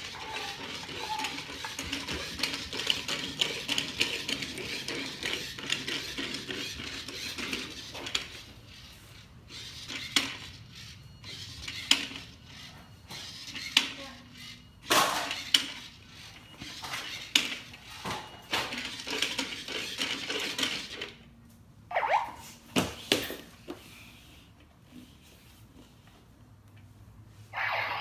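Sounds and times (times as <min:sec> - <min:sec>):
toy robot rattling gears: 0:00.0 - 0:08.9, 0:09.5 - 0:17.7, 0:18.7 - 0:21.1.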